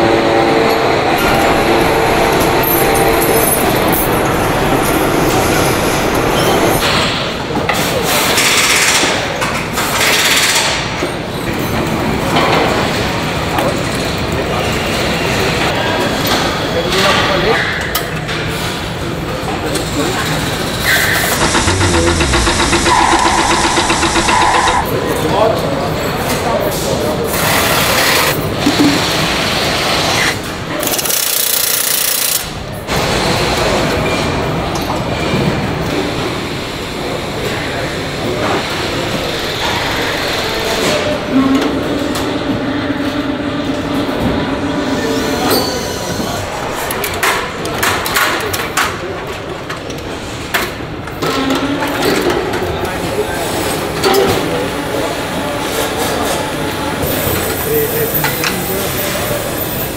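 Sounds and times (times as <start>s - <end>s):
assembly line noise with clatter: 0.5s - 59.9s
steady mechanical din: 20.3s - 25.2s
power tool hissing whir: 21.4s - 24.8s.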